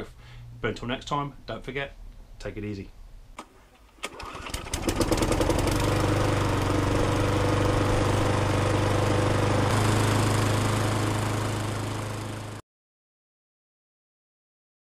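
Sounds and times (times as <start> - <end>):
small engine starting and running: 4.0 - 12.6.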